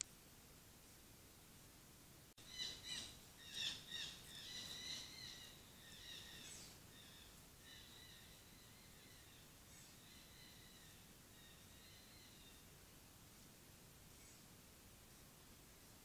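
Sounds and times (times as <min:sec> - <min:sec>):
birds chirping: 0:02.4 - 0:12.7.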